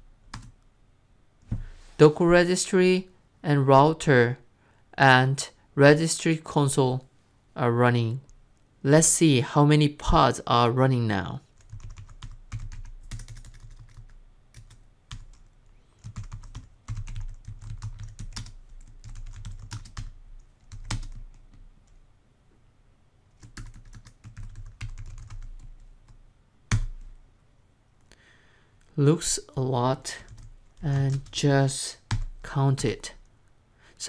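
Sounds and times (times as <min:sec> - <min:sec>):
computer keyboard typing: 0:00.3 - 0:00.6, 0:11.6 - 0:21.6, 0:23.4 - 0:25.9, 0:26.7 - 0:27.1, 0:30.3 - 0:31.4, 0:32.0 - 0:32.4.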